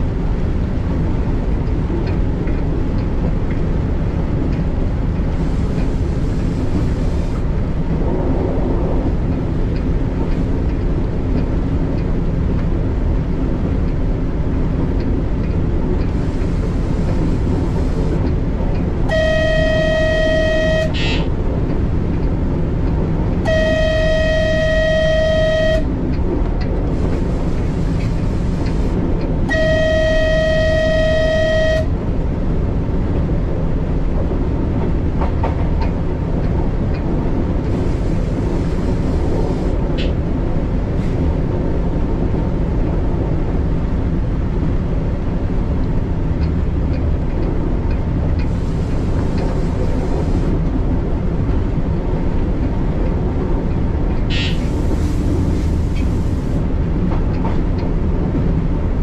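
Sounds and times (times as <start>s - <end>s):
train running rumble: 0.0s - 59.0s
train horn blasts: 19.0s - 21.3s, 23.4s - 26.0s, 28.0s - 32.0s
faint rail clicks: 24.4s - 29.4s, 34.8s - 41.4s, 45.8s - 50.8s.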